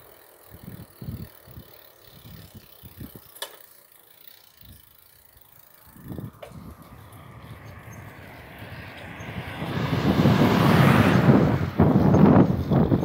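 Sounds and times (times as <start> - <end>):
bicycle rattling: 0.0 - 13.0
wind buffeting microphone: 0.5 - 3.3, 5.8 - 13.0.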